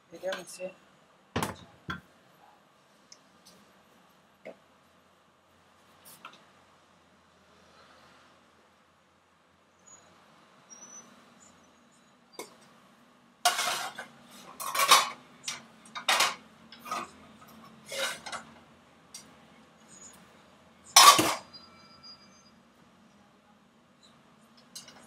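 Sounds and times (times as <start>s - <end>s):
pots and pans clattering: 13.5s - 17.2s, 17.8s - 18.5s, 21.0s - 21.5s.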